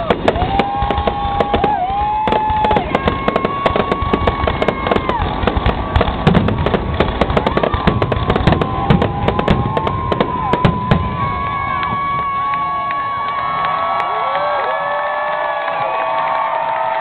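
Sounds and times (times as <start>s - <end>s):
deep firework booms: 0.0s - 13.4s
firework whistles: 0.0s - 13.7s
fireworks bangs and crackles: 0.0s - 16.6s.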